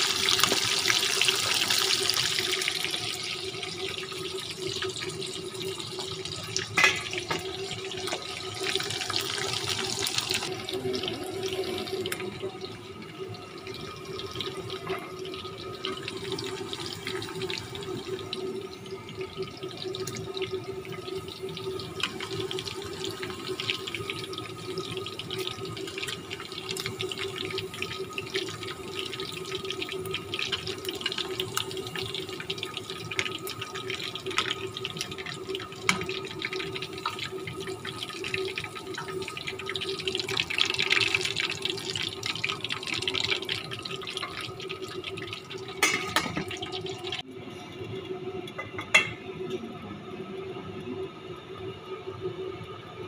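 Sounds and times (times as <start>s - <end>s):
food sizzling in pans: 0.0s - 12.4s, 19.5s - 47.2s.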